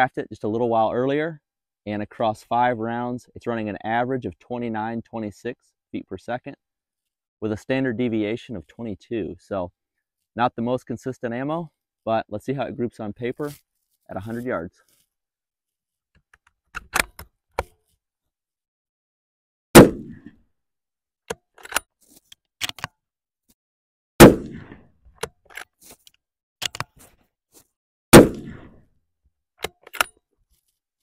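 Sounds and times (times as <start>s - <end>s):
rifle shots: 19.8s - 20.3s, 24.2s - 24.8s, 28.1s - 28.7s
rifle bolt clicks: 21.3s - 21.8s, 26.6s - 26.9s, 29.6s - 30.2s.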